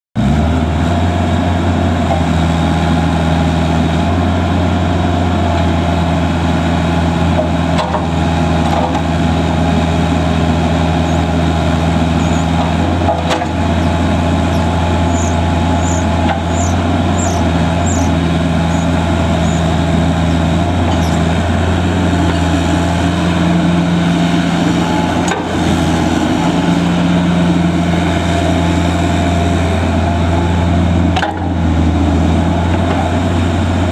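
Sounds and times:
excavator diesel engine running: 0.2s - 33.9s
short high squeaks: 12.2s - 12.6s, 14.5s - 19.7s, 20.9s - 21.2s.

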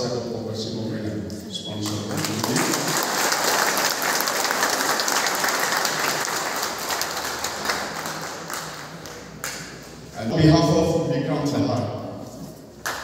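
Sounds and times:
audience applauding: 1.8s - 9.6s.

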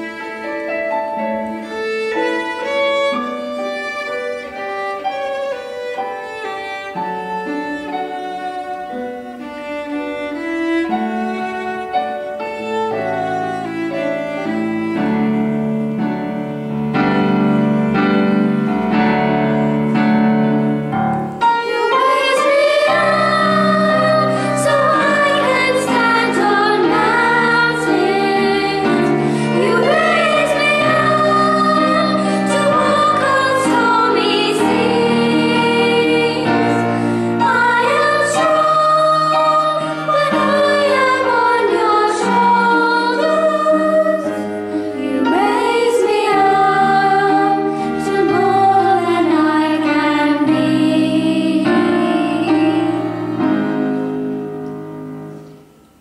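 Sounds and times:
violin accompaniment: 0.0s - 55.3s
girls singing: 21.4s - 53.6s.

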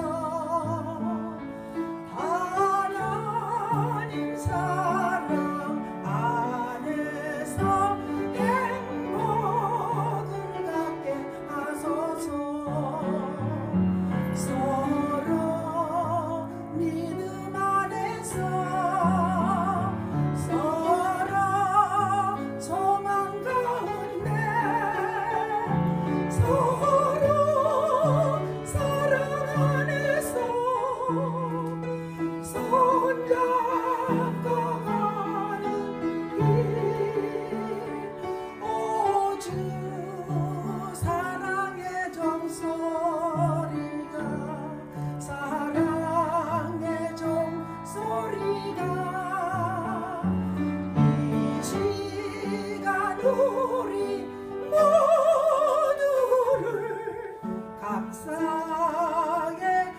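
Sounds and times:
piano chords: 0.0s - 59.9s
woman singing with vibrato: 14.4s - 31.7s, 32.3s - 59.9s.

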